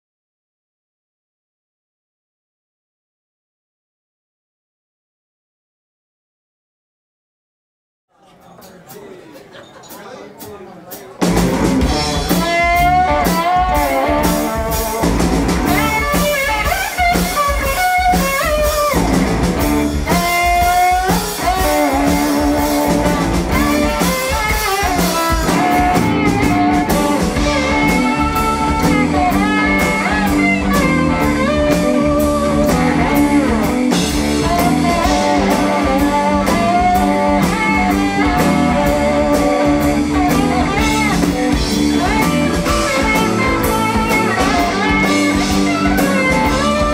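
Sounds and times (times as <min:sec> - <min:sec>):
drum kit steady beat: 0:08.4 - 0:46.9
bass guitar: 0:11.2 - 0:46.9
electric guitar lead: 0:11.2 - 0:46.9.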